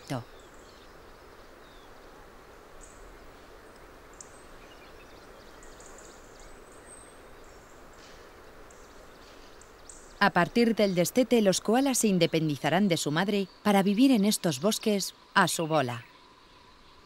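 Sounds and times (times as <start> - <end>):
steady hiss: 0.2 - 10.2.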